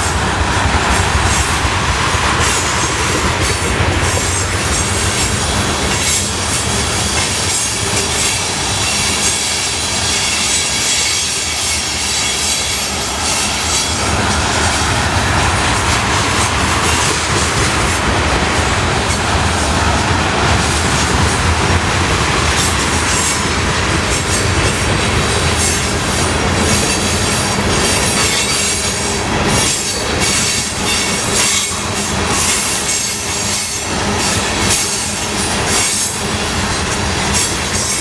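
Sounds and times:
freight train rumbling past: 0.0 - 38.0
wheels squealing: 4.0 - 15.0.

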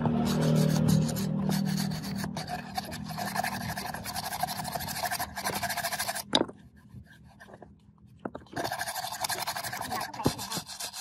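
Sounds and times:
wire brush scrubbing rubber: 0.0 - 7.6, 8.5 - 11.0.

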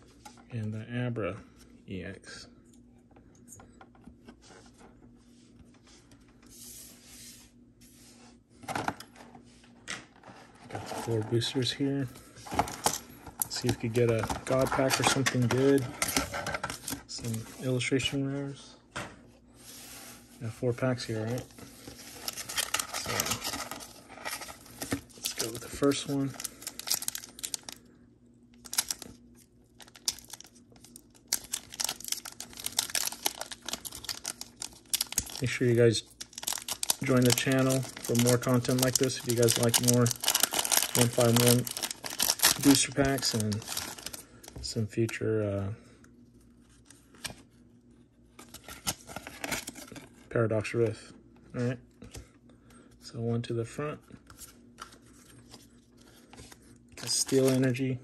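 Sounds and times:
foil wrapper tearing and crinkling: 22.1 - 27.8, 28.6 - 29.2, 29.8 - 44.2.

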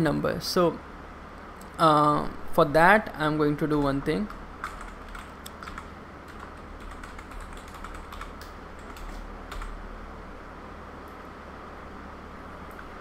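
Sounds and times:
steady low hum: 0.0 - 13.0
computer keyboard typing: 3.7 - 9.8.

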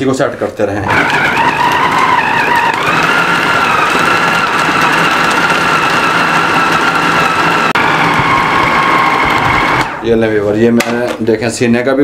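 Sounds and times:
food processor motor whine: 0.9 - 10.1.

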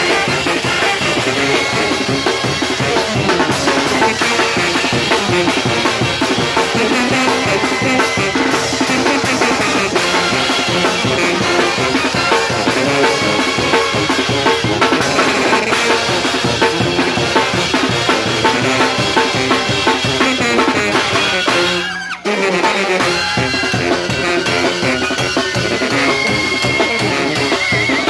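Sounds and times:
snare drum beat: 0.0 - 21.9
sousaphones playing bass line: 0.0 - 28.0.

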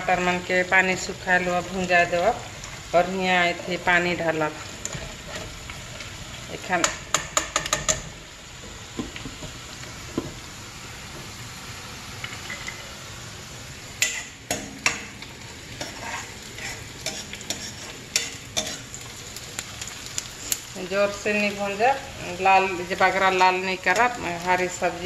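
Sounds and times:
onions sizzling in oil: 0.0 - 25.0
metal spatula scraping pan: 15.8 - 18.9.

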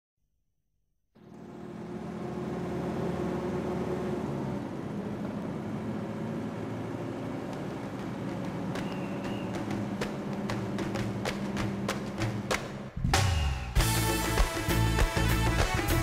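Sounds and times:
road and wind noise: 1.2 - 13.3
vehicle engine hum: 1.2 - 16.0.

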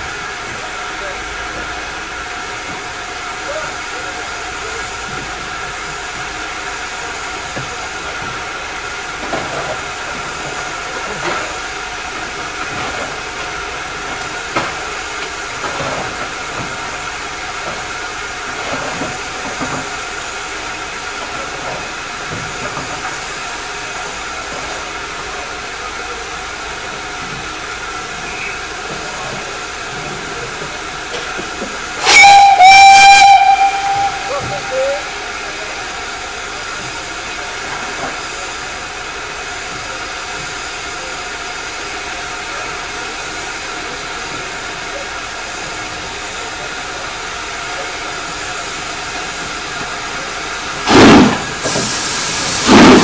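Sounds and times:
steam hissing from safety valves: 0.0 - 53.0
steam whistle: 32.0 - 35.2.

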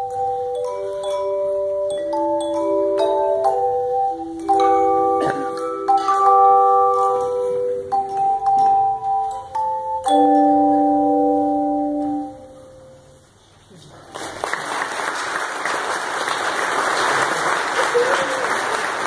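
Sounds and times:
applause: 13.9 - 19.0.

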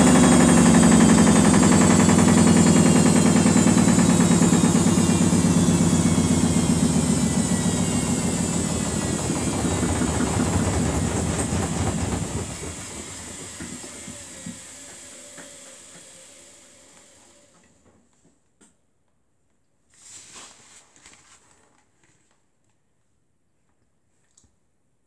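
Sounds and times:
washing machine spin winding down: 0.0 - 17.5.

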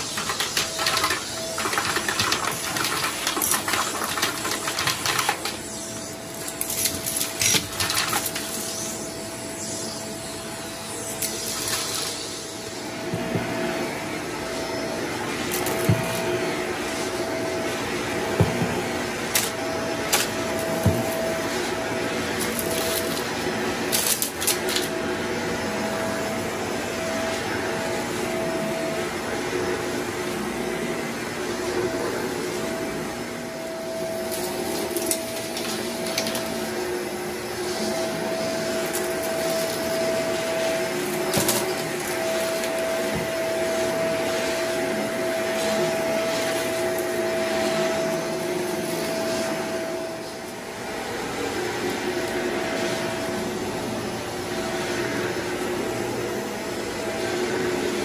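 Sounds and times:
vacuum cleaner running: 0.0 - 58.0.

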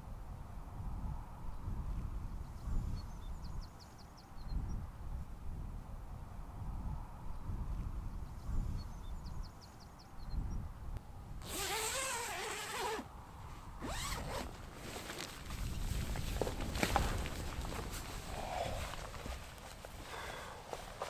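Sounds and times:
tent zipper pulled open: 11.4 - 13.1, 13.8 - 15.4.

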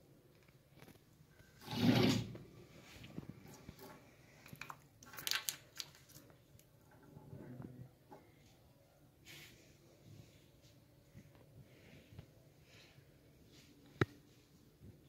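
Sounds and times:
rustling scrape: 1.6 - 4.1.

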